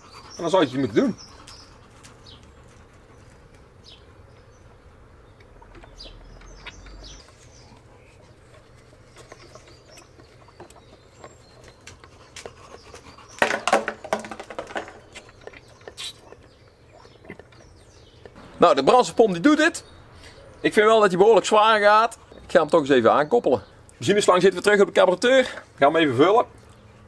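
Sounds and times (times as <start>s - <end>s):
puffing and gurgling through hose: 5.6s - 18.3s.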